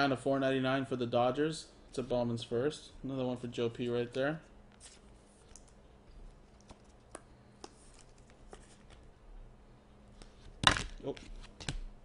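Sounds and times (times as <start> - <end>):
trading cards rustling: 4.8 - 9.1.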